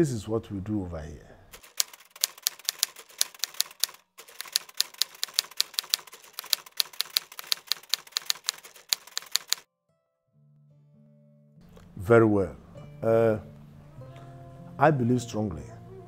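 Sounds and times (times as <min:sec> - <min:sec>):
typewriter keys clacking: 0:01.5 - 0:09.6.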